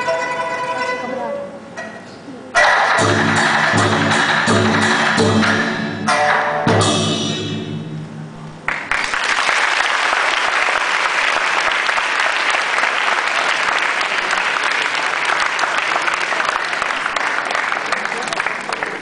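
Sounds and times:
instrumental ensemble final chord: 3.0 - 8.4
audience applause: 8.7 - 19.0.

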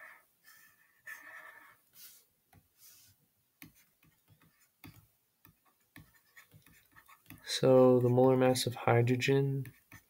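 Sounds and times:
stylus tapping on tablet screen: 3.6 - 8.4.

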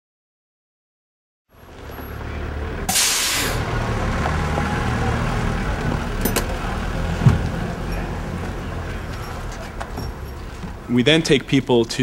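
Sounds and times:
heavy vehicle engine idling: 1.6 - 11.4
air brakes hissing: 2.9 - 3.7.

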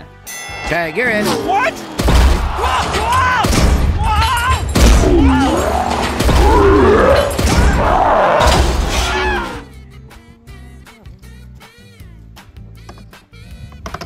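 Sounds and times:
music: 0.0 - 14.0
wordless yells: 1.0 - 9.7.

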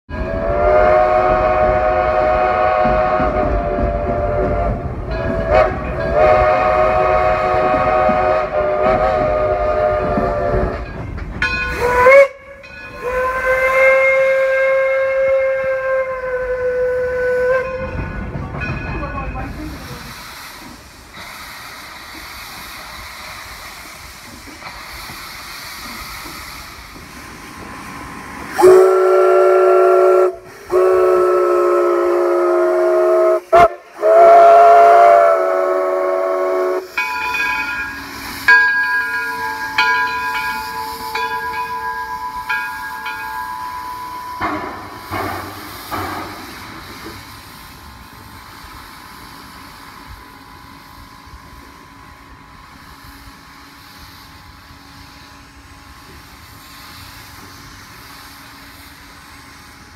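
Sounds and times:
higher steam whistle toots: 0.1 - 10.9, 11.7 - 18.0, 28.5 - 48.4
chime steam whistle blasts: 0.1 - 11.0, 11.6 - 18.1, 28.5 - 47.2
steam hissing from cylinder cocks: 0.1 - 59.9
steam locomotive hissing: 0.1 - 59.9.

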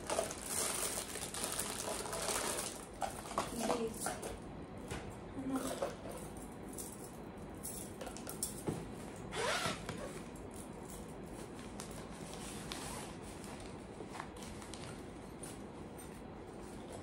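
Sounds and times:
zipper pulled: 9.3 - 10.1.

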